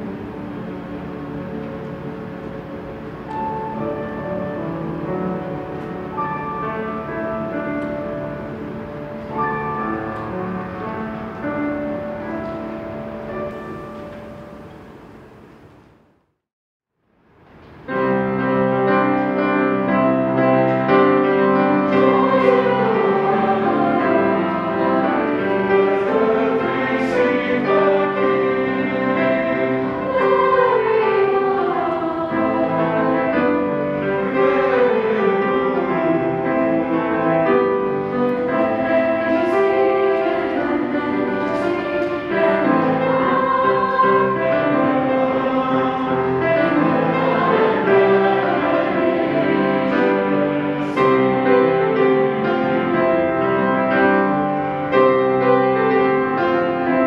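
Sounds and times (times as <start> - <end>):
mixed choir singing: 21.0 - 53.1.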